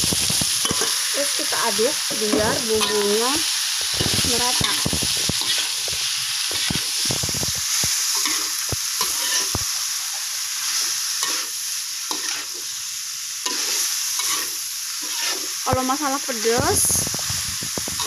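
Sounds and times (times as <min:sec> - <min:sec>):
snails sizzling in a wok: 0:00.0 - 0:18.0
metal spatula scraping a pan: 0:00.4 - 0:03.2, 0:03.8 - 0:09.6, 0:10.6 - 0:12.7, 0:13.4 - 0:15.6.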